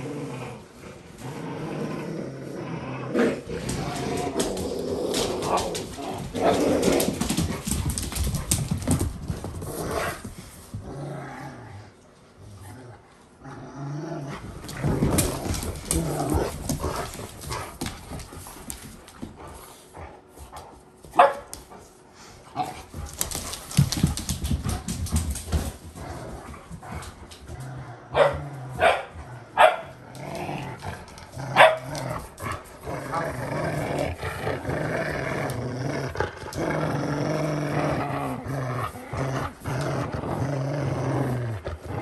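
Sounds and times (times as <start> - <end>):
dogs growling: 0.0 - 20.7, 22.1 - 42.0
dogs barking: 21.2 - 21.5, 28.1 - 30.0, 31.6 - 31.9.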